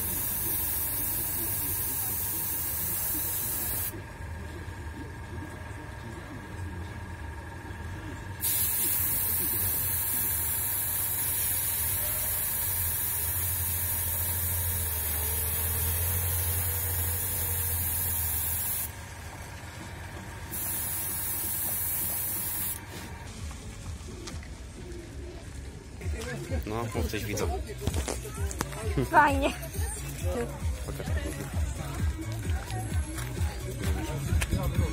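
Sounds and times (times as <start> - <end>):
airbrush spraying hiss: 0.0 - 4.0, 8.4 - 18.9, 20.5 - 22.8.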